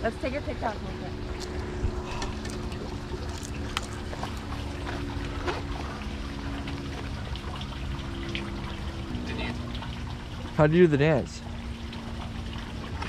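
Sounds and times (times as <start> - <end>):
steady low hum: 0.0 - 13.0
wind rumbling on microphone: 0.7 - 7.5.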